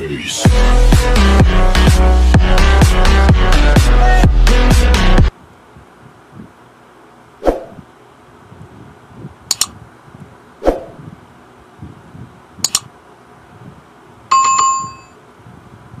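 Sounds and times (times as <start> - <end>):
quick double clicks: 9.5 - 9.8, 12.6 - 12.9
notification bell ding: 14.3 - 15.2.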